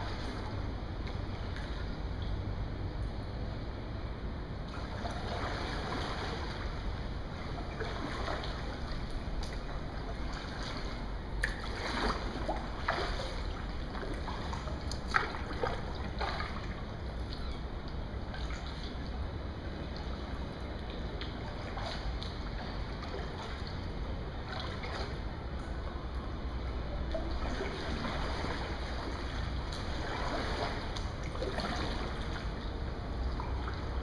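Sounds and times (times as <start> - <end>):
paddle splashes and drips: 0.0 - 3.2, 4.6 - 34.0
low background rumble: 0.0 - 34.0.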